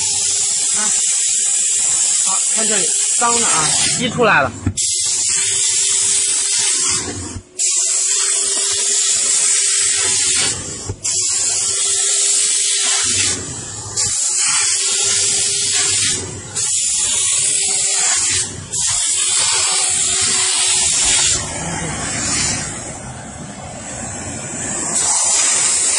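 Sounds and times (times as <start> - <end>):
steam nozzle hissing: 0.0 - 23.1, 23.8 - 25.9
machine hum: 15.2 - 25.9.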